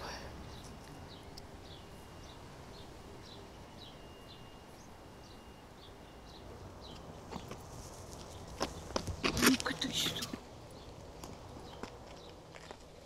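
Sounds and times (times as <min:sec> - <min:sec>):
faint bird chirping: 0:00.0 - 0:09.0.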